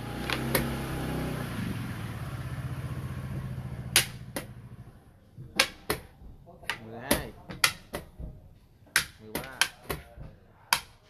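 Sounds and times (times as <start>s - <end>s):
vehicle engine humming: 0.0s - 8.8s.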